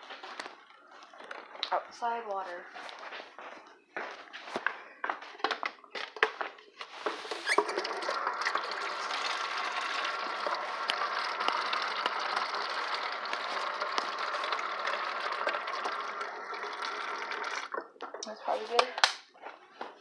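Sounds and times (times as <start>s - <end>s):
faucet running into steel sink: 7.5s - 17.8s.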